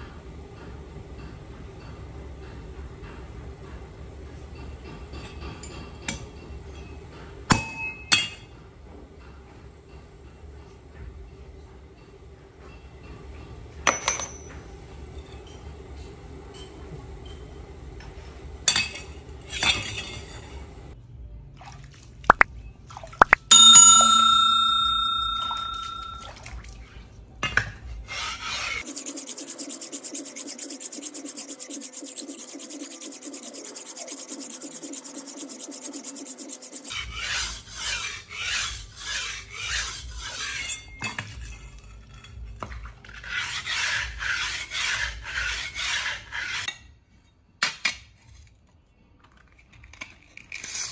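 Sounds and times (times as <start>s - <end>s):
knife blade scraping: 23.5s - 26.2s, 28.1s - 40.9s
knife sharpening strokes on stone: 23.5s - 26.2s, 28.1s - 41.6s
metallic strike ringing: 23.5s - 26.3s.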